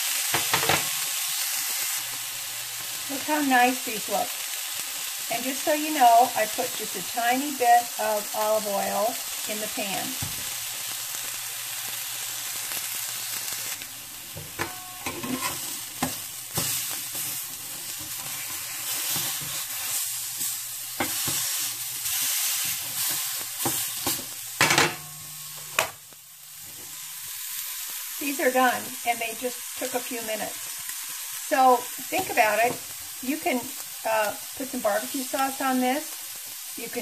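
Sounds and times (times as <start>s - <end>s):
meat sizzling in a skillet: 0.0s - 37.0s
spatula scraping and tapping pan: 0.3s - 1.0s, 14.3s - 26.0s, 32.0s - 33.0s.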